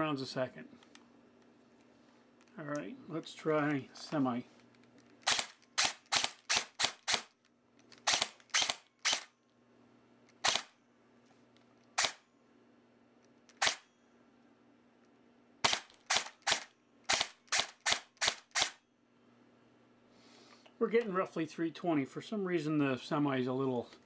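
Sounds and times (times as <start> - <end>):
airsoft gun single shots: 5.3 - 7.3, 8.1 - 9.3, 10.4 - 10.7, 13.6 - 13.8, 15.6 - 18.8.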